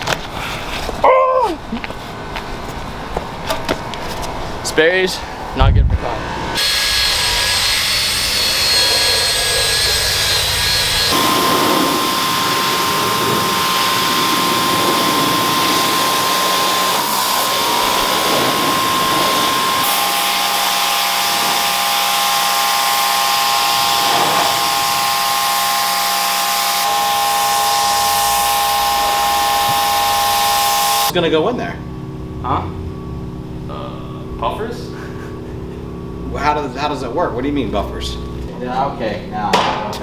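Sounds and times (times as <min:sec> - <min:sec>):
drill scrub brush spinning: 0:06.6 - 0:31.1
pressure washer spraying: 0:06.6 - 0:31.1.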